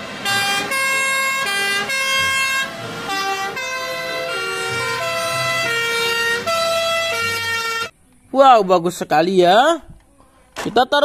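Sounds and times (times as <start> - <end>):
fire engine sirens: 0.0 - 7.9.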